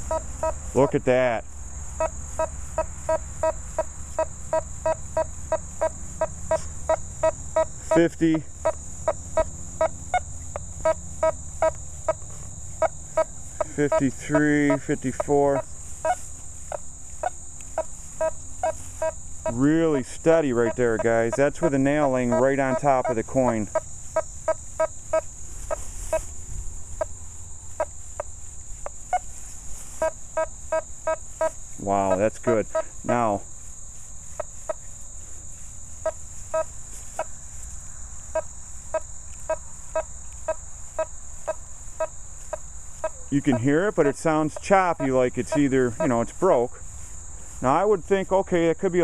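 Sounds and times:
metal detector beeps: 0.0s - 1.0s, 12.8s - 16.8s, 18.2s - 23.3s, 43.0s - 46.3s.

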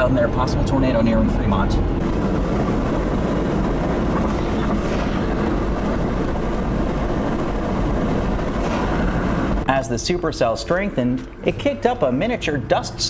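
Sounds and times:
car road noise rumble: 0.0s - 10.4s.

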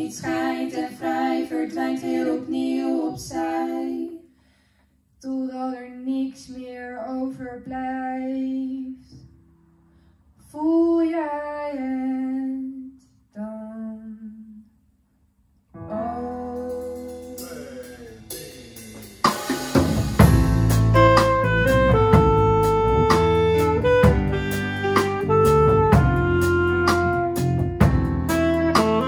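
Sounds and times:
band playing with drums: 16.6s - 29.0s.

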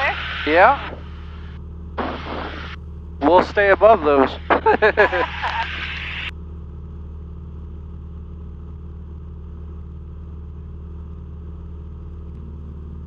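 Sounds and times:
burst of intercom hiss: 0.0s - 1.1s, 2.0s - 6.3s
plane engine droning: 0.0s - 13.0s.

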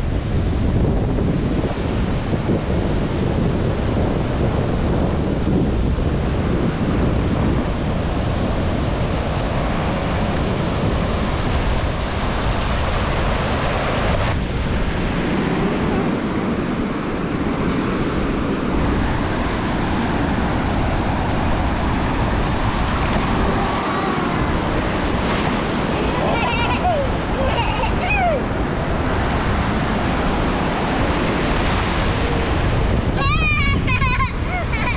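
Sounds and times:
ocean surf washing onto beach: 0.0s - 34.9s
wind buffeting microphone: 0.0s - 34.9s.

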